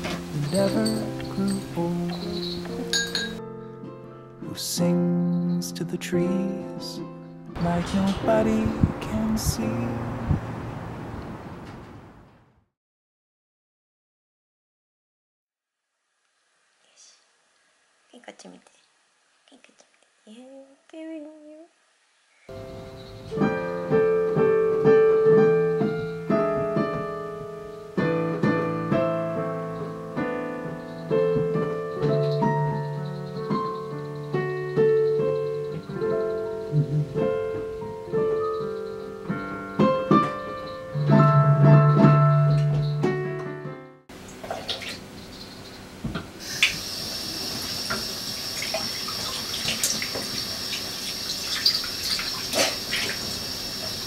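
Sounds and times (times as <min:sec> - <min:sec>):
digital piano playing: 0:00.0 - 0:10.7, 0:22.5 - 0:44.1
tap running water into sink: 0:46.0 - 0:54.0.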